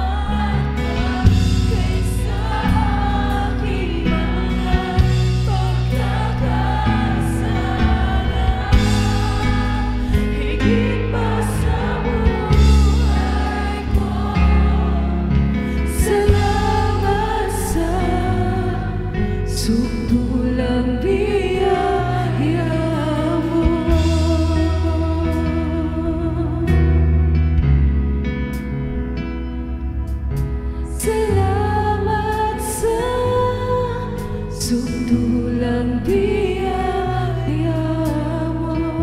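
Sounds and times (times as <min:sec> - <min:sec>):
women singing in harmony: 0:00.0 - 0:27.0, 0:30.9 - 0:39.0
acoustic guitar: 0:00.0 - 0:39.0
bass guitar: 0:00.0 - 0:39.0.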